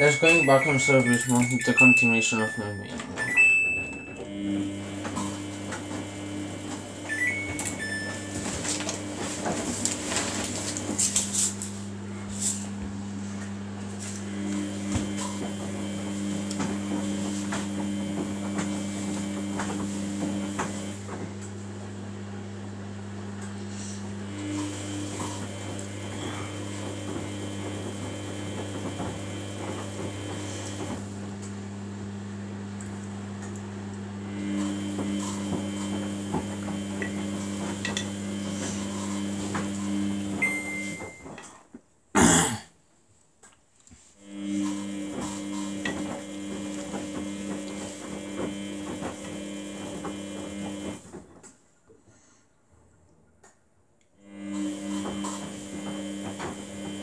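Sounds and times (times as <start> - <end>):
short beep: 0.0 - 4.3
washing machine motor hum: 0.0 - 41.5, 44.0 - 52.3, 54.2 - 57.0.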